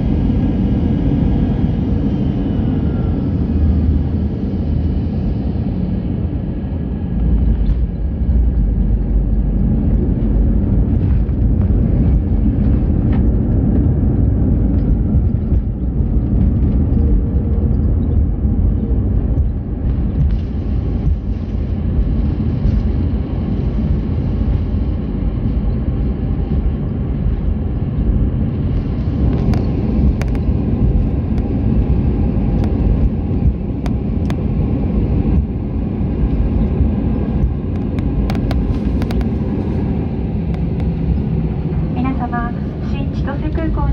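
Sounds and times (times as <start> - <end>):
airliner cabin engine rumble: 0.0 - 43.9.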